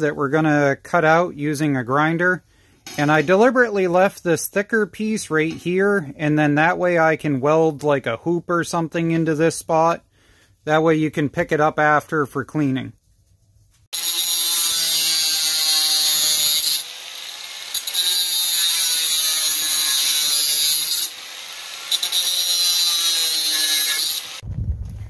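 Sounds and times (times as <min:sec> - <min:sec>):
angle grinder cutting metal: 0:13.9 - 0:24.4.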